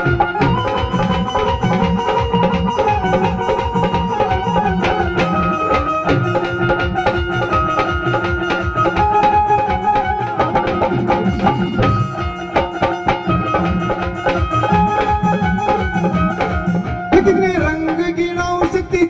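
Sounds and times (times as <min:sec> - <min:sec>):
dhol drum beating: 0:00.0 - 0:19.0
electronic drum pad: 0:00.0 - 0:19.0
held melody line: 0:00.0 - 0:19.0.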